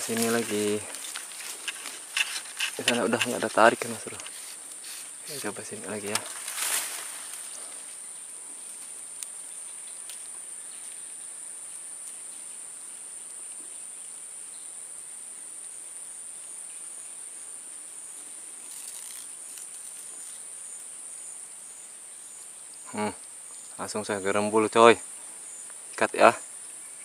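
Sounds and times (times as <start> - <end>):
high-pitched insect chorus: 0.0 - 27.0
faint ticks: 8.7 - 11.1.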